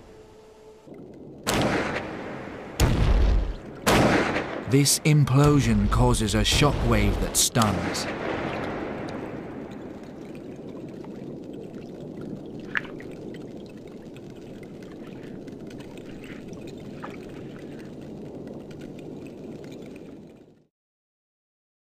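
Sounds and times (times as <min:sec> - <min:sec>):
pistol shrimp blast rumble: 0:01.4 - 0:09.7
underwater watery rush: 0:01.4 - 0:20.4.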